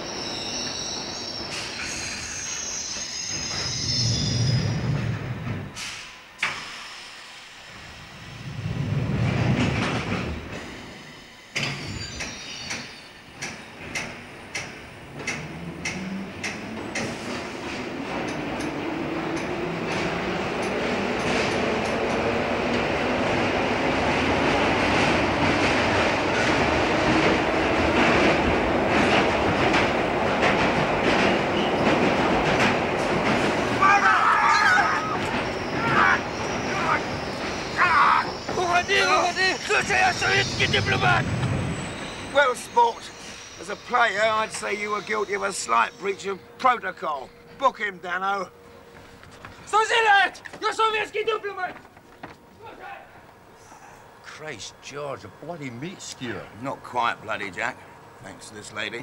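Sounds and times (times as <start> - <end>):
underground train running: 0.0 - 59.0
wheels clicking over rail joints: 11.6 - 22.9.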